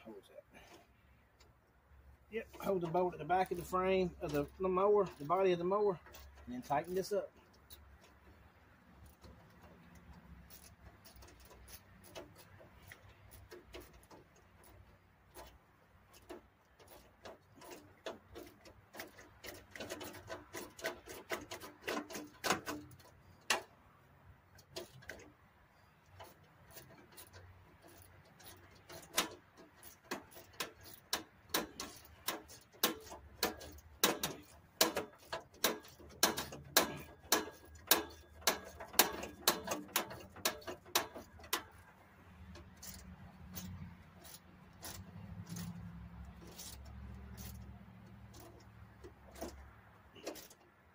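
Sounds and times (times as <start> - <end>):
ratchet wrench clicking: 9.0 - 15.5, 26.0 - 41.8, 42.4 - 50.6.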